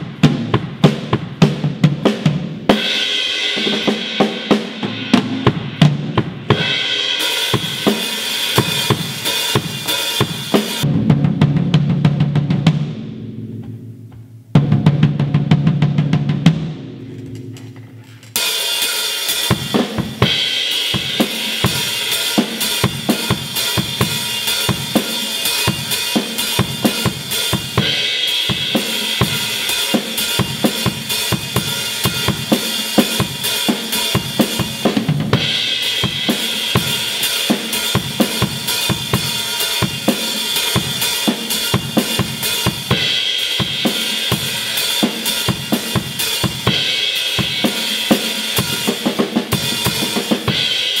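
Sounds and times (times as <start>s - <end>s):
drum kit groove: 0.0s - 51.0s.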